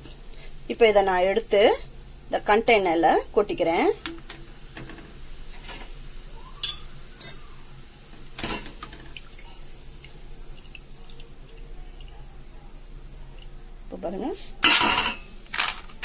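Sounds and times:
hot oil dripping into a pan: 3.1 - 13.7.

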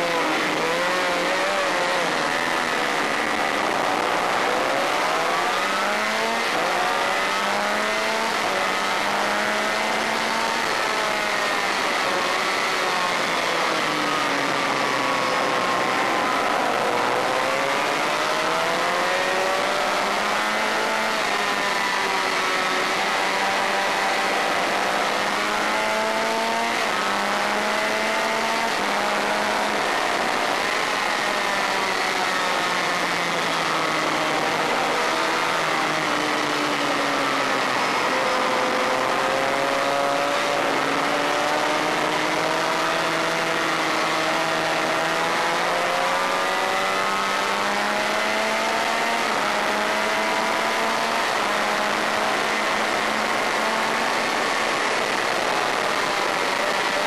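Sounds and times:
race bike engine revving: 0.0 - 57.0.

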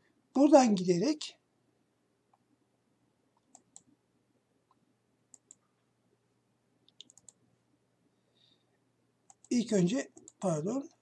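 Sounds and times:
computer mouse clicks: 3.4 - 3.9, 4.7 - 5.7, 6.8 - 7.4, 9.3 - 10.5.

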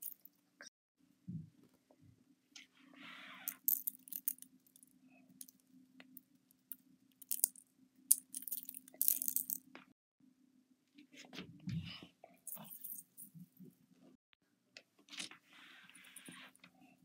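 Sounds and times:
sprinkles rattling from glass vial: 3.5 - 4.4, 7.2 - 9.6.

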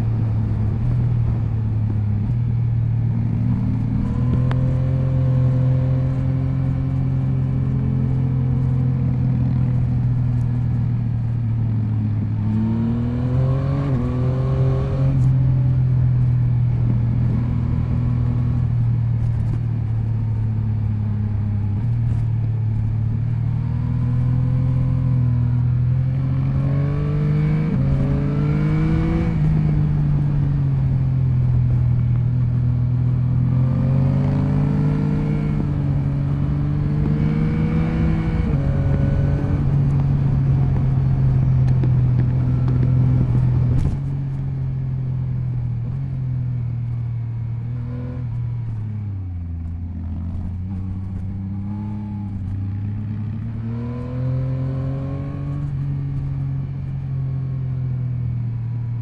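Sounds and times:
wind noise: 0.0 - 46.8
motorcycle engine revving: 3.0 - 20.2, 20.8 - 58.4.

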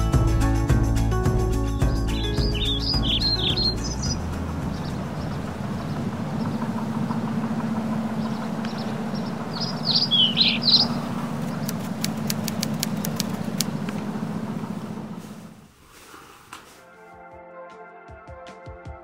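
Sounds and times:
birds chirping: 1.5 - 15.2
low engine-like rumble: 2.0 - 15.7
light high clicks: 11.4 - 14.0.

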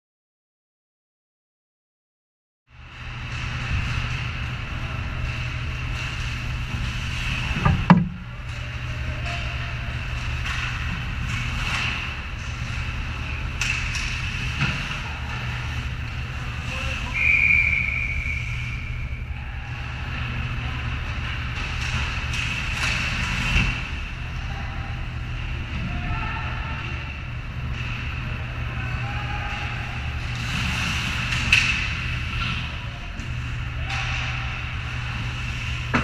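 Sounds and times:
steady low hum: 2.7 - 36.0
hockey sticks clacking: 3.2 - 15.8, 29.5 - 36.0
faint shouts: 25.8 - 27.1, 28.7 - 30.1.

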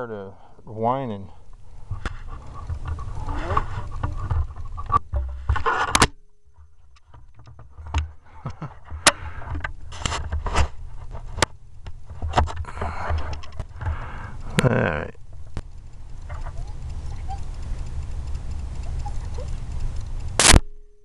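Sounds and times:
scraping: 1.6 - 14.4
low rumble: 6.2 - 20.4.

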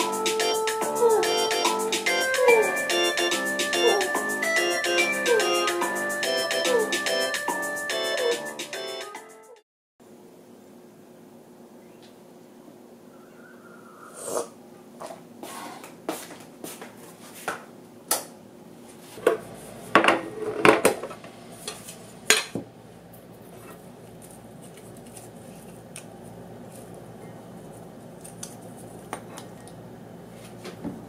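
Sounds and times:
kitchenware clinking and clattering: 19.2 - 22.6.

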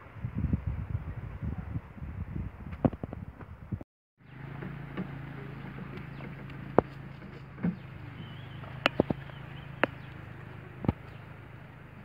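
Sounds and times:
motorbike engine idling: 4.2 - 12.0.

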